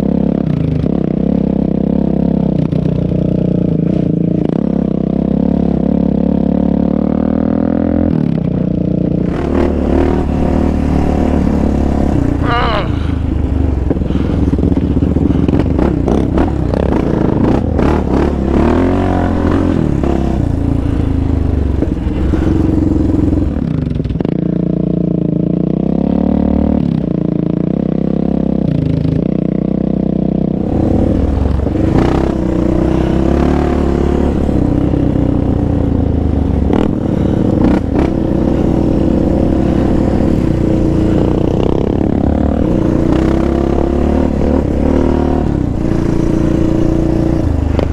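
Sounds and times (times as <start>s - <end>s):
quad engine revving: 9.2s - 24.3s, 30.5s - 47.9s.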